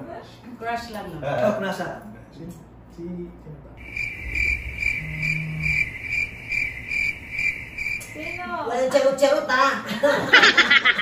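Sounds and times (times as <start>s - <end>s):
cricket chirping: 3.8s - 8.9s.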